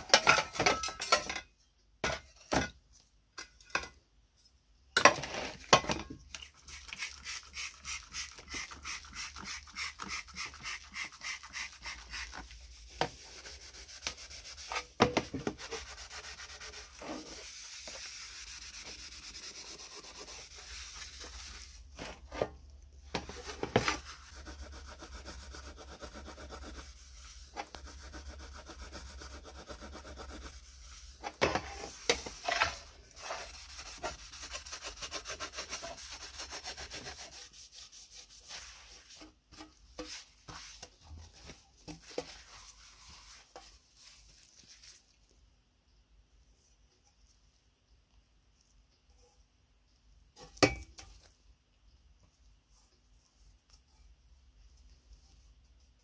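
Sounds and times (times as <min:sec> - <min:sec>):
cloth wiping panel: 0:06.6 - 0:22.4, 0:23.1 - 0:39.4, 0:40.0 - 0:45.0
sponge scrubbing metal panel: 0:23.3 - 0:31.2.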